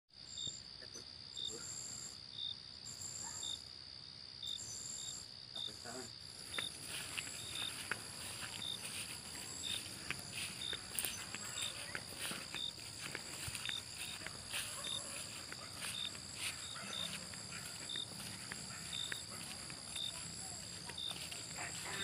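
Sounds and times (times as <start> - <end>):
insect chirps: 0.2 - 22.0
insect drone: 0.2 - 22.0
footsteps through grass: 6.3 - 22.0.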